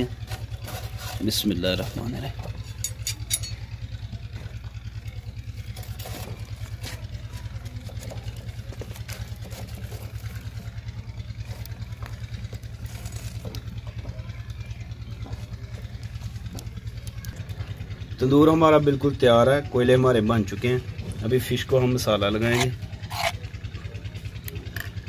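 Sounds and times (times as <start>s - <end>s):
steel rods clinking on clay: 0.0s - 3.8s
small engine running: 0.0s - 25.0s.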